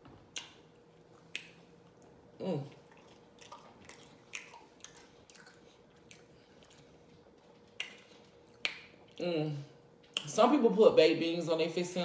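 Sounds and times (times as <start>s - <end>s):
wet lip-smacking while chewing: 0.3s - 9.2s.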